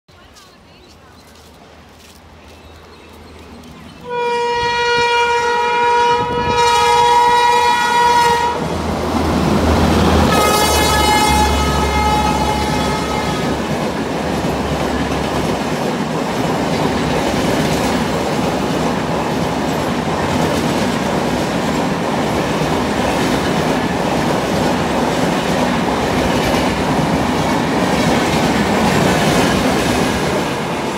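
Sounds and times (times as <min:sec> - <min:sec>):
train rumbling past: 0:00.2 - 0:30.9
locomotive horn blasts: 0:04.0 - 0:08.7, 0:10.0 - 0:13.7.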